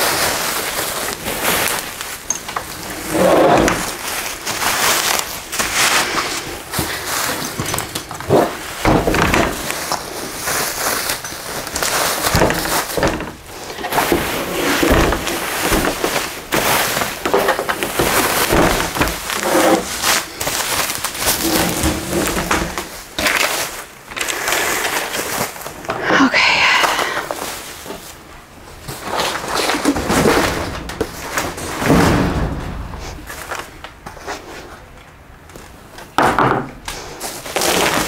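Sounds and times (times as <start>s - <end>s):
plastic and cardboard rustling: 0.0s - 36.2s, 36.9s - 38.0s
knocks and scrapes: 11.1s - 25.0s, 28.9s - 34.9s.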